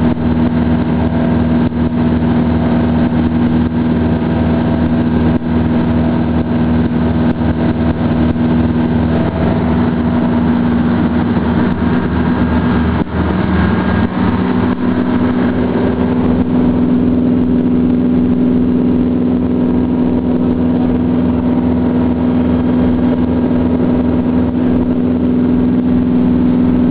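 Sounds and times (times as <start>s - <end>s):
tugboat diesel engine drone: 0.0s - 26.9s.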